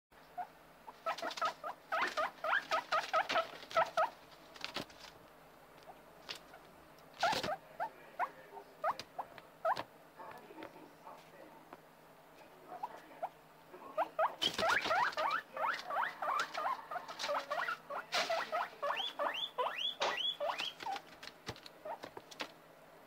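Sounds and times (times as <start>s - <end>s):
guinea pigs squeaking: 0.2s - 5.1s, 5.8s - 10.4s, 12.7s - 22.5s
rustling: 1.0s - 7.6s, 14.4s - 19.0s.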